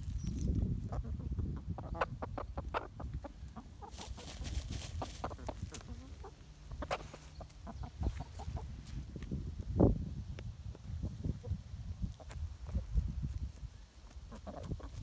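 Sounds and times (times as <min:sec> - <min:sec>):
chickens clucking softly: 0:00.1 - 0:09.6, 0:10.7 - 0:15.0
scratching and rustling: 0:03.8 - 0:08.9.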